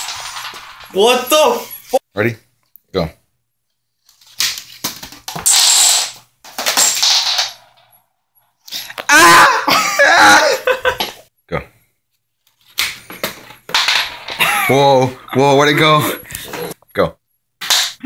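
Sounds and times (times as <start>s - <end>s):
marble rolling along a track: 0.0s - 1.6s.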